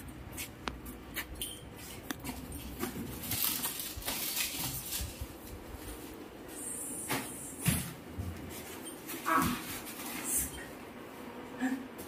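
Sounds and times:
plastic wrapping crinkling: 2.7s - 6.0s.

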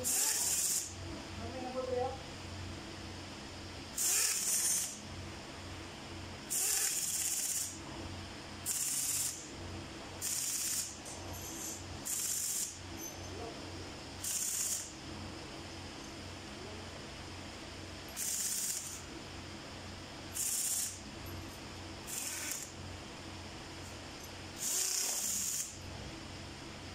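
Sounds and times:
faint low hum: 12.9s - 14.0s.

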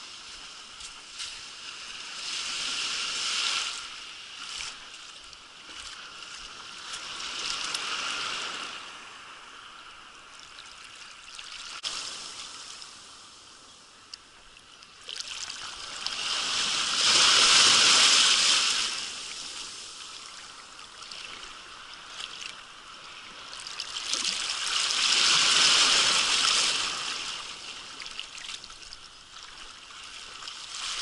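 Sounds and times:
surf washing on shore: 0.0s - 31.0s.

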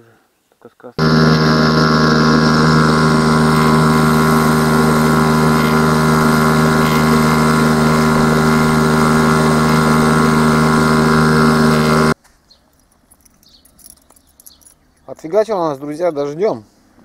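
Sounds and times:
outboard motor running: 1.0s - 12.2s.

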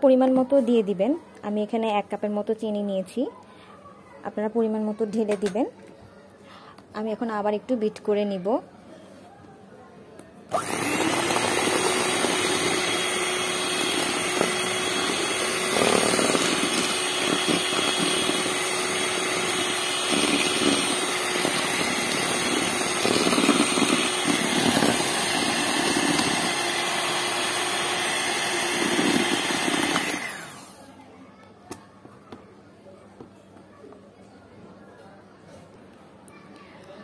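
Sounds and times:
electric hand mixer whining: 10.5s - 30.8s.

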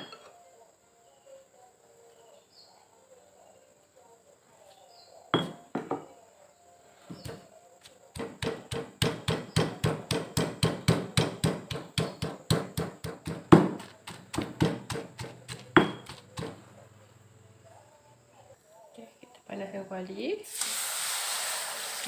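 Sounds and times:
stone pestle pounding in mortar: 8.1s - 16.6s.

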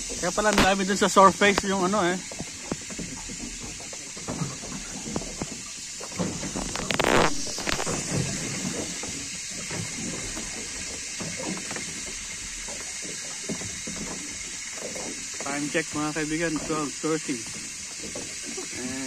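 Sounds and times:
steady background hiss: 0.1s - 2.6s
phone scraping rub: 6.7s - 8.1s.

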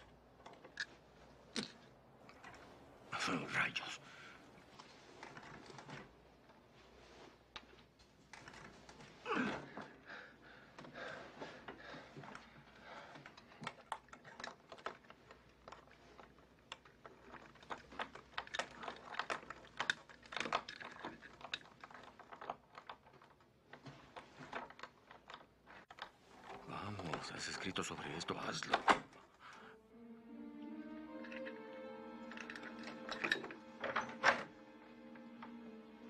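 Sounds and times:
metal sliding in lock: 32.2s - 34.6s.

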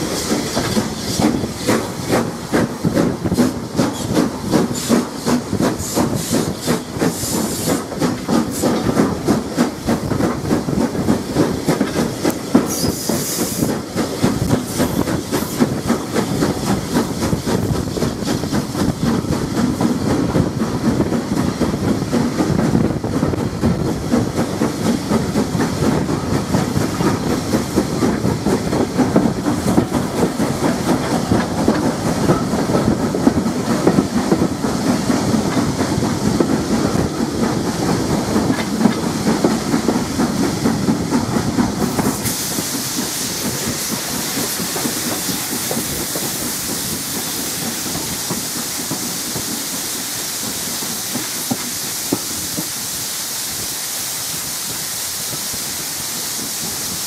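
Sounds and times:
steam hissing: 0.0s - 57.0s
train wheels rumbling on rails: 0.0s - 57.0s.

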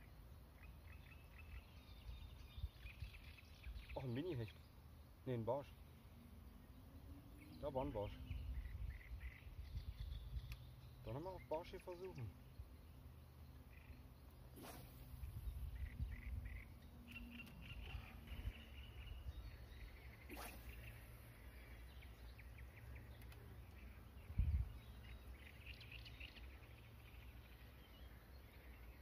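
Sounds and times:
birds chirping: 0.0s - 29.0s
wind rumble on microphone: 6.7s - 10.7s, 15.0s - 16.8s, 24.2s - 25.0s.

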